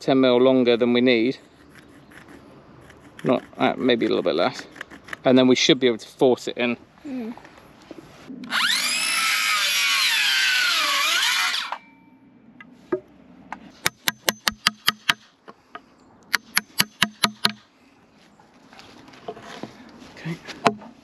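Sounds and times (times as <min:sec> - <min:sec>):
circular saw cutting wood: 0:08.4 - 0:11.8
hammer striking chisel: 0:13.8 - 0:15.3, 0:16.3 - 0:17.6.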